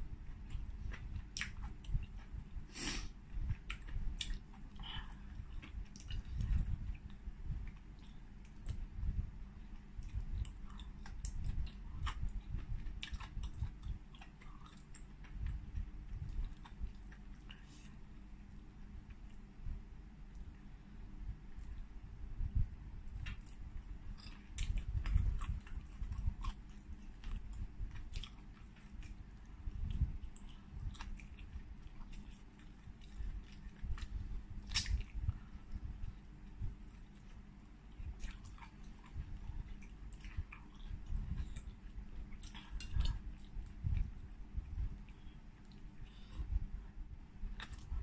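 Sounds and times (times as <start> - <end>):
chewing soft food: 0.0 - 48.0
wet chewing mouth clicks: 24.2 - 44.1
wet mouth clicks and smacks: 29.8 - 35.3.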